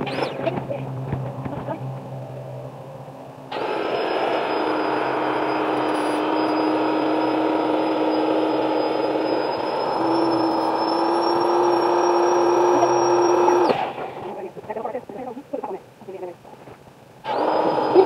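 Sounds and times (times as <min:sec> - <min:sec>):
electric air pump running: 0:03.5 - 0:14.0, 0:17.2 - 0:18.0.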